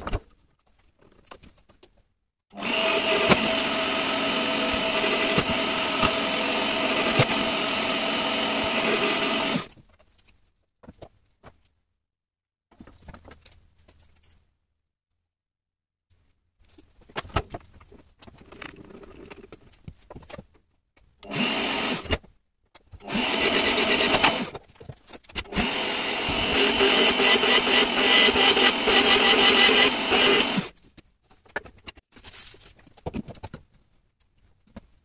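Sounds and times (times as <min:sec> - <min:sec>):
drill press drilling metal: 0:02.6 - 0:09.7, 0:23.1 - 0:24.5, 0:25.5 - 0:30.7.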